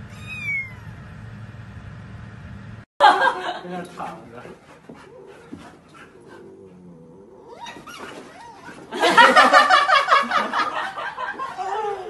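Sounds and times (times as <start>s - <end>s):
puppy whining: 0.0s - 1.0s, 4.8s - 9.0s, 11.4s - 12.0s
puppy yelping: 0.0s - 1.0s, 7.4s - 8.9s.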